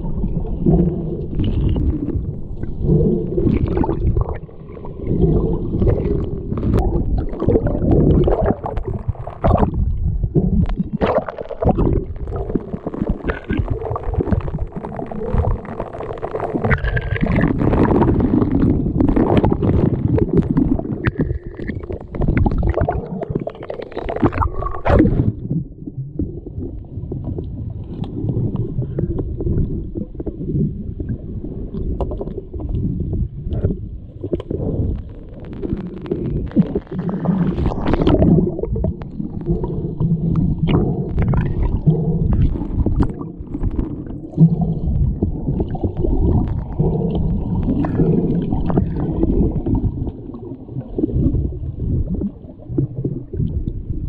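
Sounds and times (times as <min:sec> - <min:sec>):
underwater churning water and bubbles: 0:00.0 - 0:54.0
sharp underwater clicks: 0:10.4 - 0:25.4, 0:33.5 - 0:50.2.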